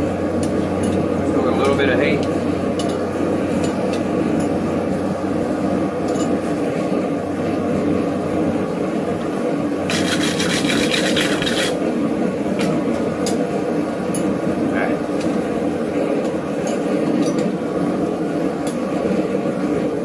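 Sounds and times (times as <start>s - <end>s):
steady background noise: 0.0s - 20.0s
rapid scraping on steel hook: 9.9s - 11.8s.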